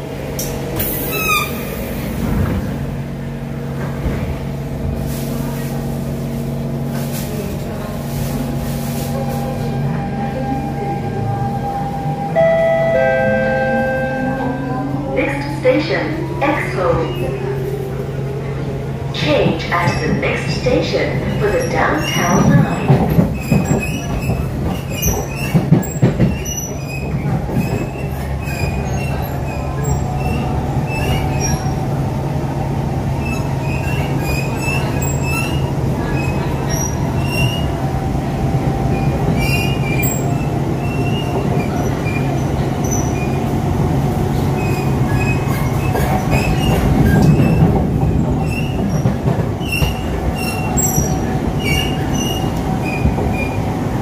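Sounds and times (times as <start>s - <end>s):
train wheels rumbling: 0.0s - 54.0s.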